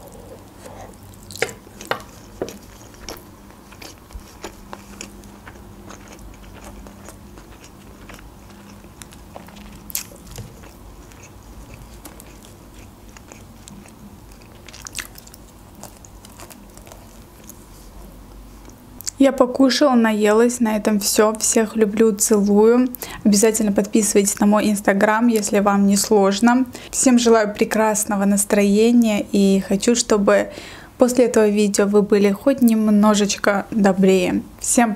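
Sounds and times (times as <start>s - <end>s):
chewing and biting bread: 0.0s - 18.8s.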